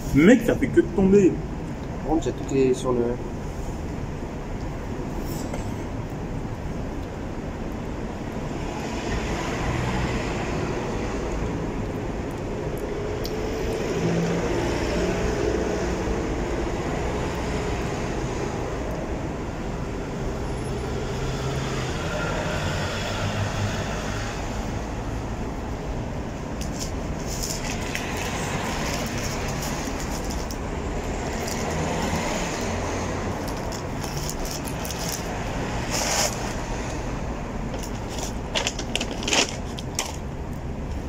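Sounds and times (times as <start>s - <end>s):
road traffic rumble: 0.0s - 41.0s
paper rustling: 26.6s - 30.5s, 37.7s - 40.2s.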